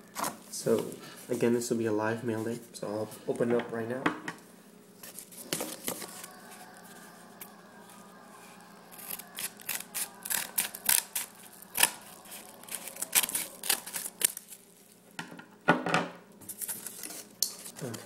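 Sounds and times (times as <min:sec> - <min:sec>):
scissors snipping paper: 0:08.9 - 0:14.6.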